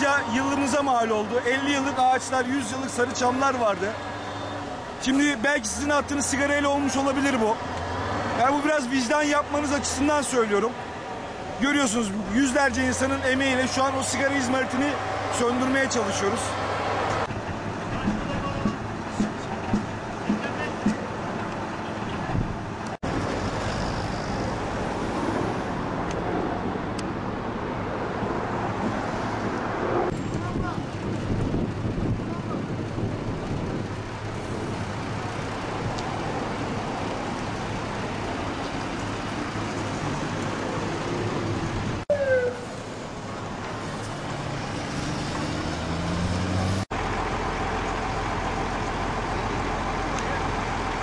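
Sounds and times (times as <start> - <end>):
heavy vehicle engines rumbling: 0.0 - 51.0
wind on microphone: 27.8 - 36.6
truck engine revving: 43.8 - 51.0.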